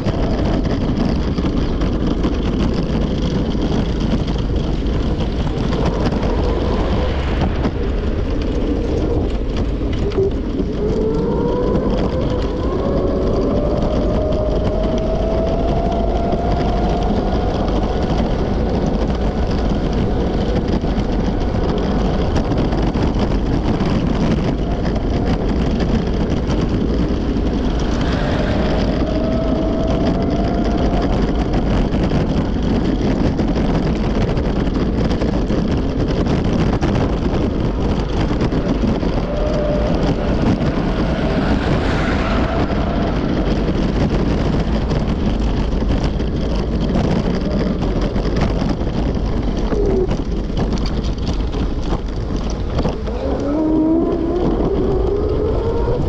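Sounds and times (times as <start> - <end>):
rushing wind on microphone: 0.0 - 56.0
wheels rolling on pavement: 0.0 - 56.0
faint rising whine: 24.4 - 33.4, 36.7 - 46.9.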